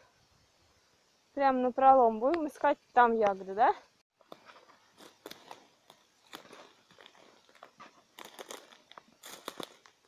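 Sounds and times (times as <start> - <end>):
branches brushing: 4.2 - 10.0
footsteps crunching on forest floor: 4.2 - 10.0
twigs crackling: 4.2 - 10.0.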